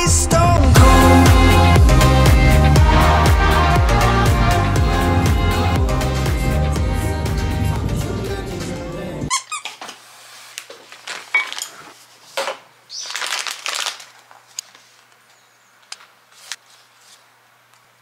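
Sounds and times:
background music: 0.0 - 9.3
squeak: 9.3 - 9.8
plastic pouch crinkling: 10.6 - 12.1, 12.9 - 15.1.

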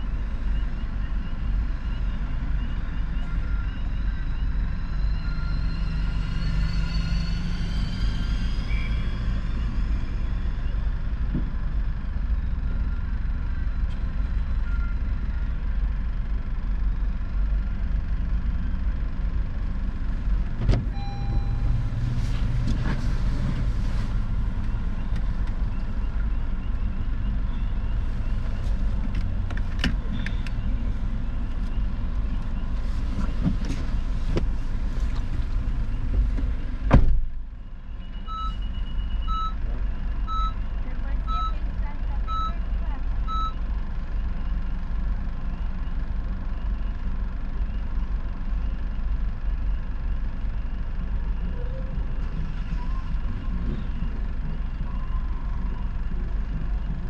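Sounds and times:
low vehicle rumble: 0.0 - 57.0
reversing alarm beeping: 20.9 - 22.0, 38.0 - 39.6, 40.3 - 40.6.

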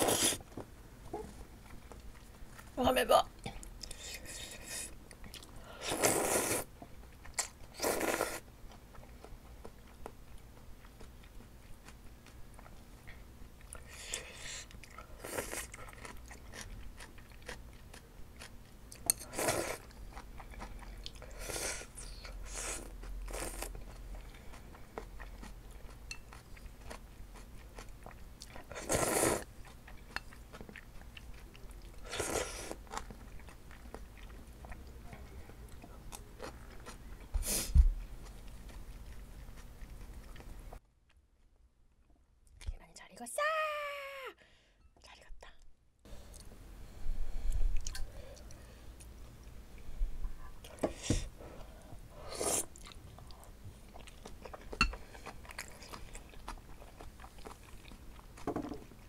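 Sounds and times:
air conditioner hum: 0.0 - 59.0
chewing: 5.1 - 37.4, 38.0 - 40.8, 52.7 - 59.0
noodle slurping: 5.8 - 6.7.

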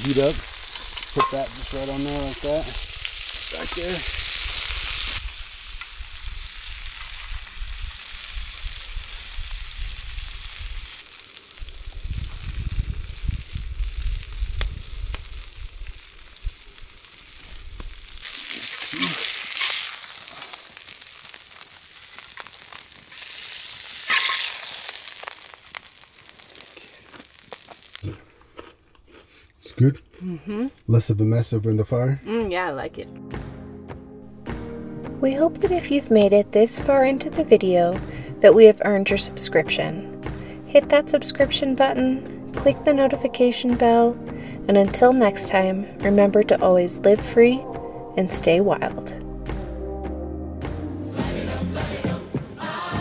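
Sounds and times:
burger patties sizzling on griddle: 0.0 - 28.0.

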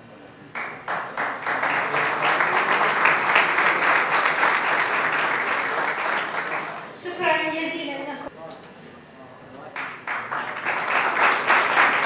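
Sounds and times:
audience applauding: 0.6 - 7.2, 9.7 - 12.0.

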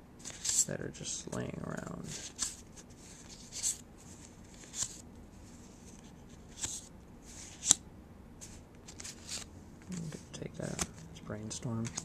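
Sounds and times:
papery card swishes: 2.0 - 7.8, 8.4 - 11.0.

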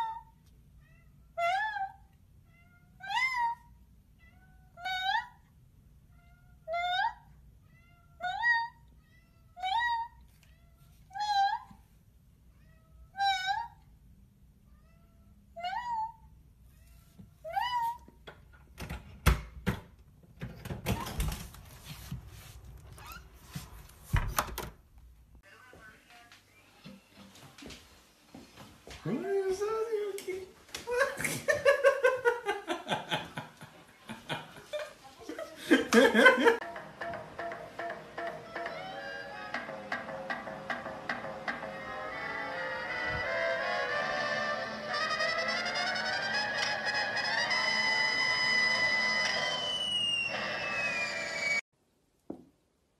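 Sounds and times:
person laughing: 30.8 - 36.6
soft music: 36.6 - 49.2.

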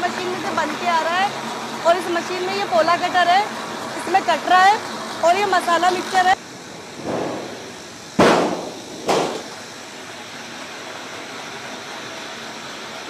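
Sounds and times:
machinery running: 0.0 - 13.0
sudden loud noise bursts: 7.0 - 9.6.

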